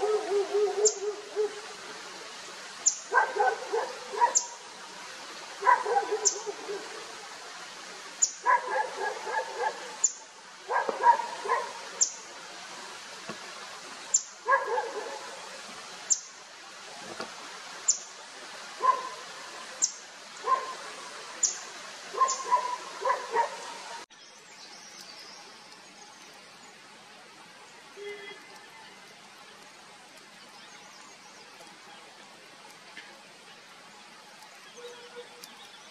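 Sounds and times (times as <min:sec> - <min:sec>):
lower barking calls: 0:00.0 - 0:01.8, 0:02.8 - 0:04.7, 0:05.6 - 0:07.2, 0:08.2 - 0:12.3, 0:14.1 - 0:15.4, 0:18.7 - 0:24.1.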